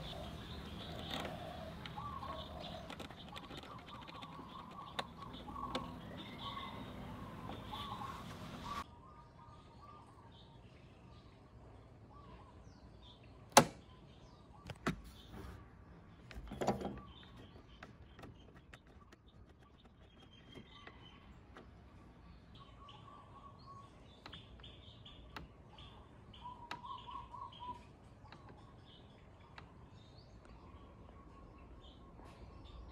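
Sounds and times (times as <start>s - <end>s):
small birds chirping: 0.0s - 32.9s
sharp clicks and knocks: 0.7s - 7.8s, 13.5s - 13.8s, 16.3s - 21.9s.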